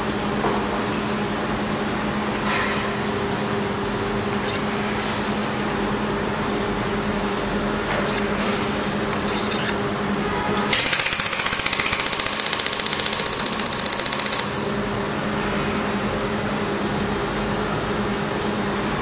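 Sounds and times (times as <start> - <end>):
steady low hum: 0.0 - 10.8, 12.2 - 19.0
laser welder snapping shots: 10.6 - 14.8.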